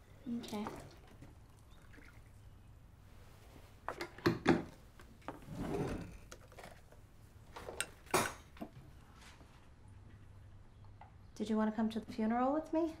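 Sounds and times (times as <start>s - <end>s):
soft rustling smear: 3.0s - 3.9s.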